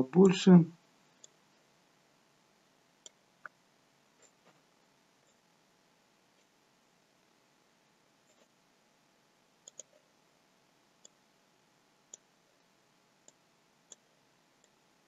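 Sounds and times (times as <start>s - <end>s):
computer mouse clicks: 9.6s - 10.1s.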